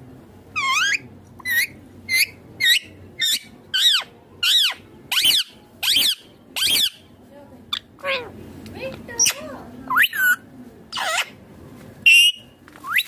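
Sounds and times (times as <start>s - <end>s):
parakeet calling: 0.6s - 7.1s, 9.2s - 11.4s.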